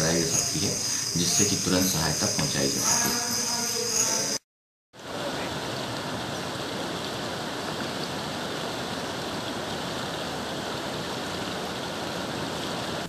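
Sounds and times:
floodwater rushing: 0:05.0 - 0:13.0.

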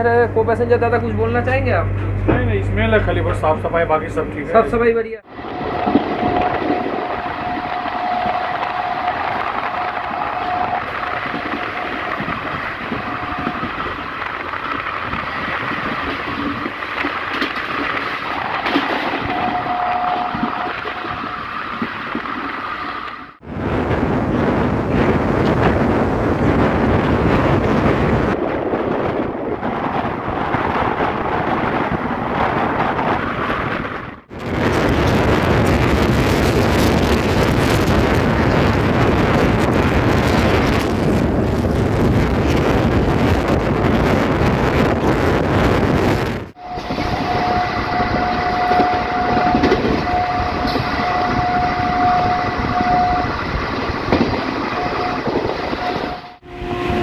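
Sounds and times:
passing train on next track: 0:00.0 - 0:57.0
train running fast: 0:00.0 - 0:57.0
train horn long note: 0:05.2 - 0:14.7, 0:18.3 - 0:21.4, 0:46.6 - 0:57.0.

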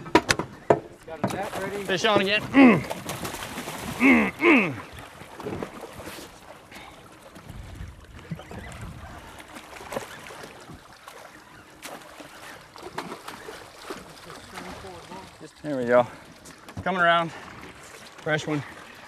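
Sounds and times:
water splashing beside boat: 0:00.0 - 0:19.0.

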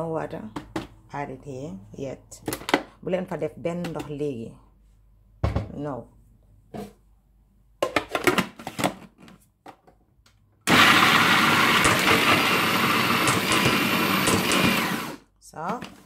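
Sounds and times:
food processor motor chopping: 0:10.7 - 0:15.3.

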